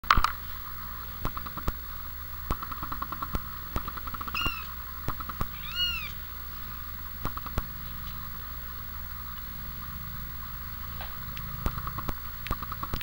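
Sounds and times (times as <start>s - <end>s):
kitten mewing: 4.2s - 6.3s.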